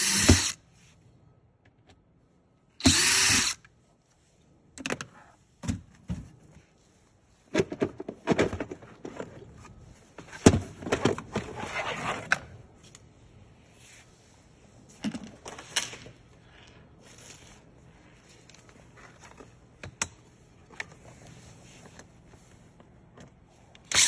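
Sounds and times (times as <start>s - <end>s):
cordless drill running: 0.0s - 0.6s, 2.8s - 3.6s.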